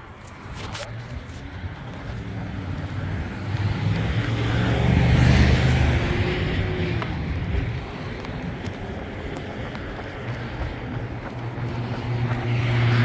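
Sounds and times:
vehicle driving past: 0:02.0 - 0:13.0.

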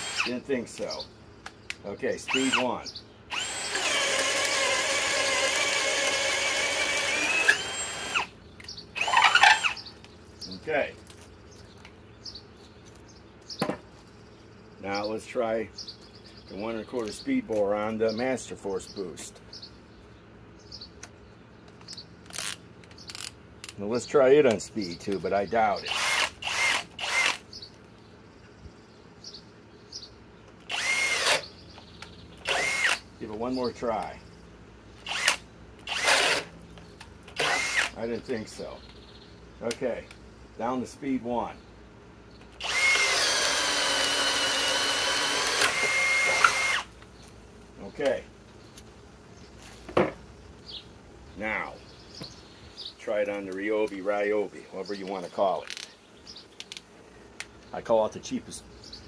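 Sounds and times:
drill motor whining: 0:00.0 - 0:00.4, 0:02.3 - 0:08.3, 0:09.0 - 0:09.9, 0:25.9 - 0:27.4, 0:30.6 - 0:31.5, 0:32.4 - 0:33.0, 0:35.0 - 0:36.5, 0:37.3 - 0:38.0, 0:42.5 - 0:46.9.

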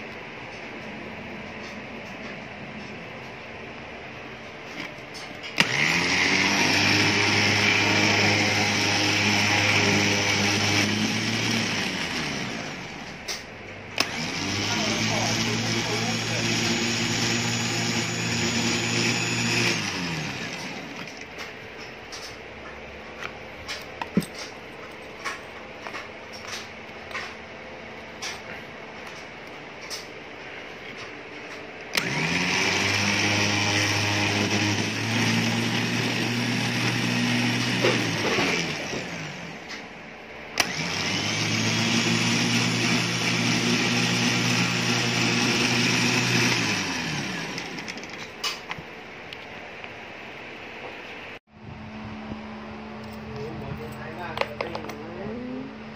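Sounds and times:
electric winch running: 0:05.4 - 0:21.3, 0:31.9 - 0:39.8, 0:40.6 - 0:48.6.

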